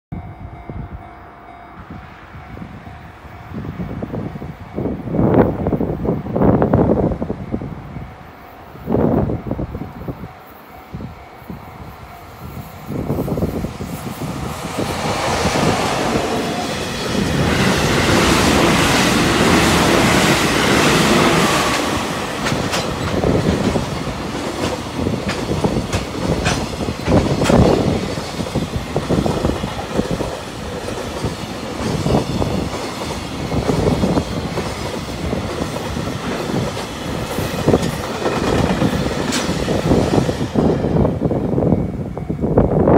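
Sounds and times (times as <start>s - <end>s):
electric locomotive passing: 0.1s - 42.9s
wheels clattering over rail joints: 21.7s - 39.8s.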